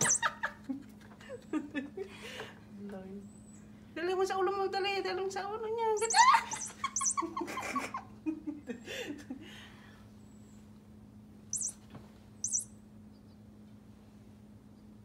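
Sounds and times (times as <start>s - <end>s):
toy mouse high squeaks: 0.0s - 0.3s, 6.0s - 7.2s, 11.6s - 11.8s, 12.4s - 12.7s.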